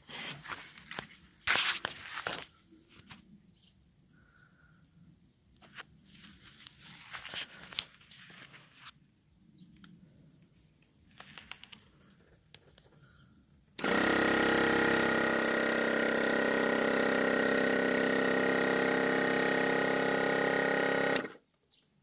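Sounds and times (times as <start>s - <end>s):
electric air compressor humming: 13.8s - 21.4s.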